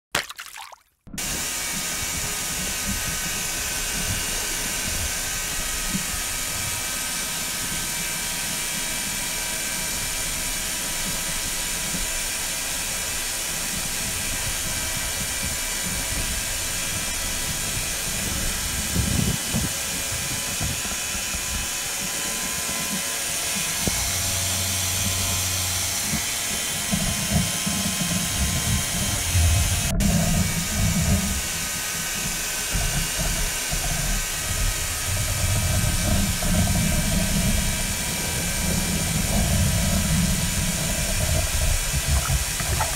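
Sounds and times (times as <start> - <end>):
drone propellers whining: 13.4 - 42.9
low rumbling thumps: 28.3 - 32.2, 32.8 - 42.9.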